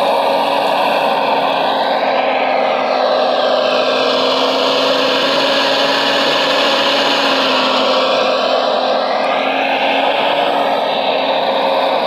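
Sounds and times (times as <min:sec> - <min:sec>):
model excavator mechanical whir: 0:00.0 - 0:12.0.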